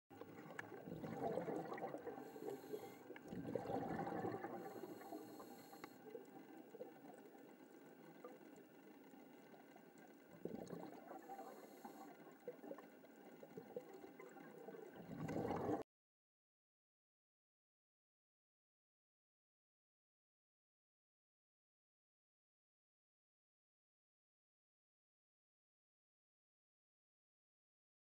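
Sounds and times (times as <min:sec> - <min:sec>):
exhaled regulator bubbles: 0:00.1 - 0:15.8.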